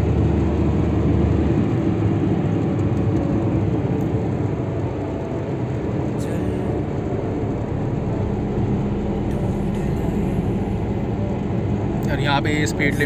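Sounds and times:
car engine hum: 0.0 - 13.0
tyres rumbling on road: 0.0 - 13.0.

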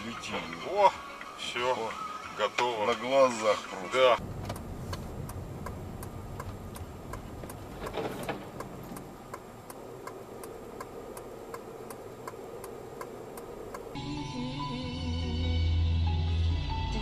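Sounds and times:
engine and road rumble: 0.0 - 17.0
turn signal relay ticking: 4.2 - 14.0.

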